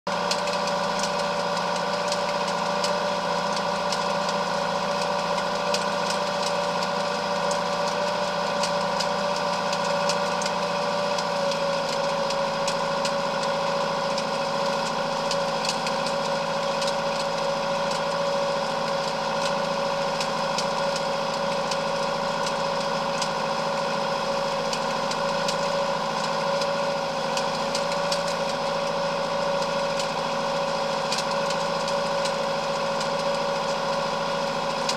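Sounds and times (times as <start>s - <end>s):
tractor diesel engine running: 0.1s - 34.9s.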